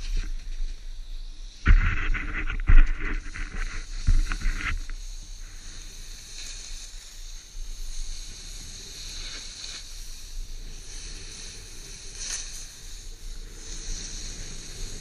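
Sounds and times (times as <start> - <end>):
snowboard carving through snow: 0.0 - 15.0
low thumps: 1.7 - 4.8.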